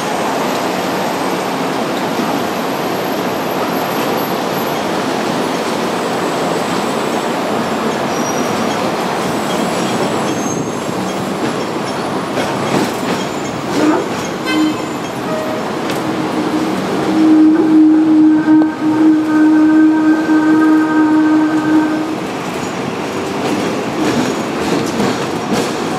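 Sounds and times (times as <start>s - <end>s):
tram wheels and motor rumbling: 0.5s - 25.9s
tram wheels knocking: 7.8s - 25.9s
wheel squeals: 8.0s - 12.1s.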